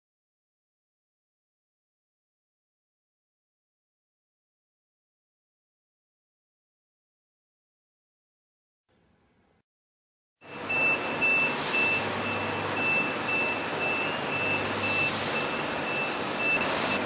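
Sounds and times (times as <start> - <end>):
high beep: 10.4 - 17.0
industrial vacuum cleaner running: 10.4 - 17.0.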